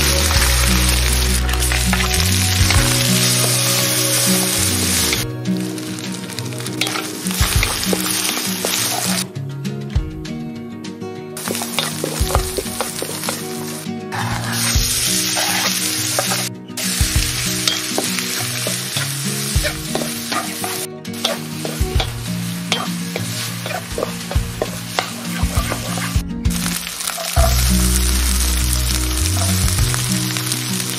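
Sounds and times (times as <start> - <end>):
rice sizzling in a wok: 0.0 - 9.3, 11.4 - 30.9.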